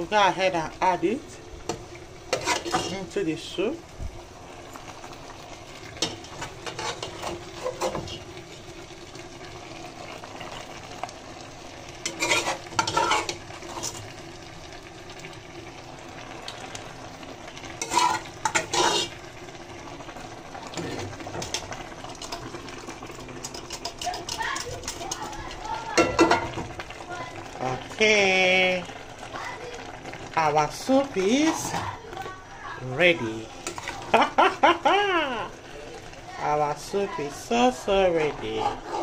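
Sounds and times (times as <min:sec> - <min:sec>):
soup simmering sizzle: 0:00.0 - 0:39.0
metal spoon scraping a pot: 0:02.3 - 0:03.0, 0:06.0 - 0:08.2, 0:12.0 - 0:14.1, 0:17.8 - 0:19.2, 0:23.4 - 0:25.4, 0:33.6 - 0:34.0, 0:38.5 - 0:39.0.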